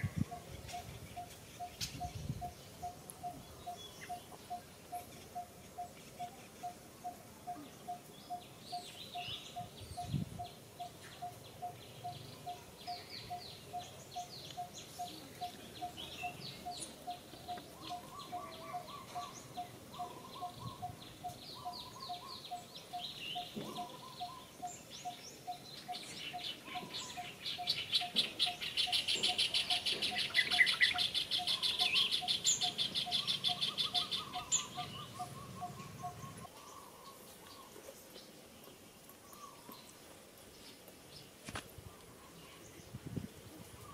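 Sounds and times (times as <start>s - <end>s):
bird chirps: 0.0s - 40.0s
fast rattling bird trill: 27.1s - 36.4s.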